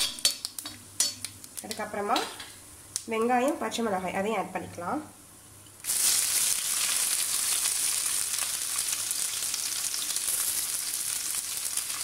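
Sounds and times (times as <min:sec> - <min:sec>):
onions sizzling in hot oil: 0:05.8 - 0:12.0.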